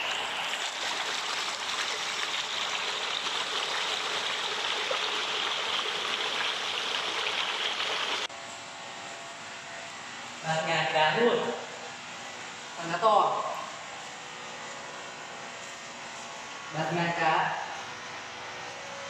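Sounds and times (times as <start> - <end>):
water rushing and splashing: 0.0 - 8.3.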